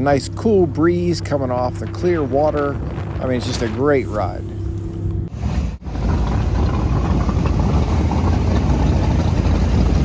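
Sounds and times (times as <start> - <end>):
motorboat engine drone: 0.0 - 10.0.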